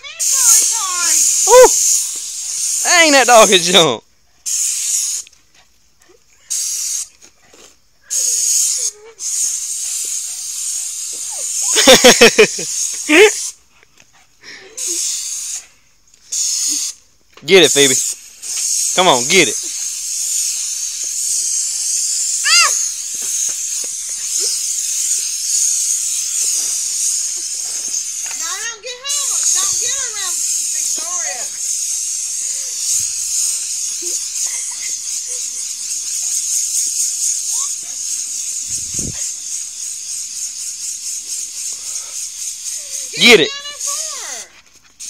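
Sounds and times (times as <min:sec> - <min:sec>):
brief high-pitched cry: 0:00.0 - 0:02.0, 0:22.4 - 0:23.0
compressed air hissing from nozzle: 0:00.1 - 0:03.5, 0:04.2 - 0:05.7, 0:06.4 - 0:45.0.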